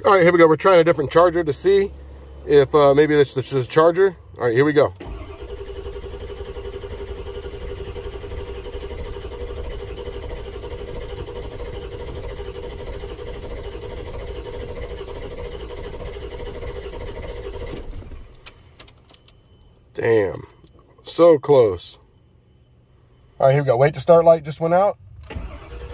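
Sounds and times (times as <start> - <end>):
starter cranking diesel engine: 4.8 - 18.3, 25.1 - 25.9.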